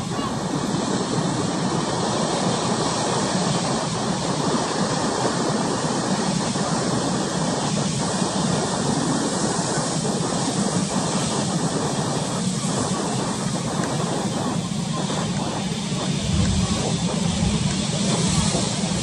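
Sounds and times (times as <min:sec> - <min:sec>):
choppy sea: 0:00.0 - 0:19.0
wind rushing: 0:15.2 - 0:19.0.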